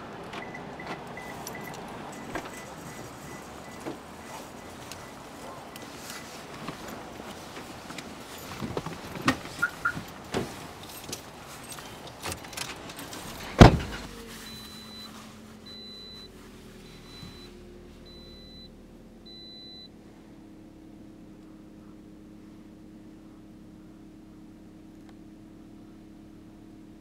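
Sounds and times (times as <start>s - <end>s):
car door slamming: 0.3s - 6.0s, 8.6s - 10.8s, 12.2s - 14.3s
rustling and knocks in car seat: 0.3s - 17.6s
car warning chime beeps: 0.4s - 7.5s, 9.5s - 10.2s, 14.0s - 19.9s.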